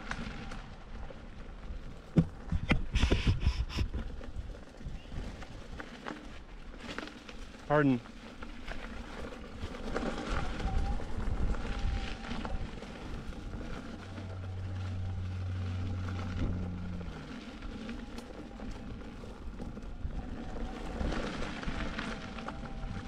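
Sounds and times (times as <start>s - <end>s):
tyres rolling on gravel: 3.6s - 23.0s
low motor hum: 8.1s - 23.0s.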